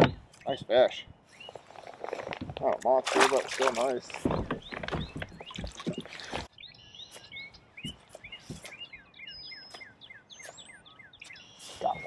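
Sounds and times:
small birds chirping: 0:00.0 - 0:12.0
water splashing: 0:02.2 - 0:04.5, 0:05.2 - 0:06.5.

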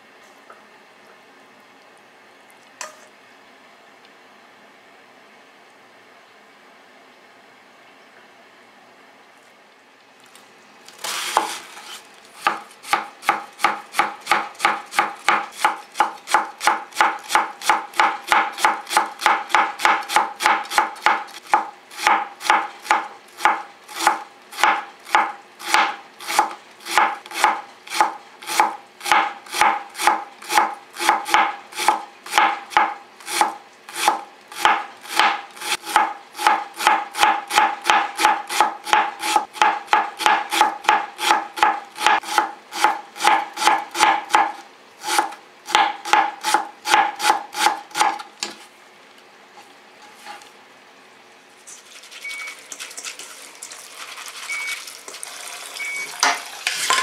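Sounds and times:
knife shredding cabbage: 0:10.9 - 0:48.7, 0:51.6 - 0:55.4.

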